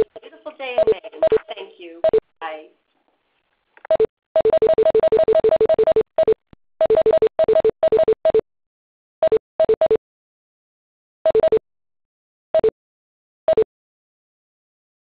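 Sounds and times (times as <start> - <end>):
two-note conference call beeps: 0.8 - 1.4.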